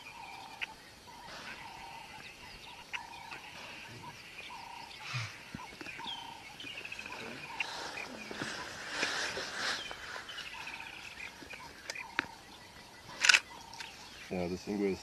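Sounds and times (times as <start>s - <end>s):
wild birds calling: 0.0s - 15.0s
sharp clicks: 13.2s - 13.9s.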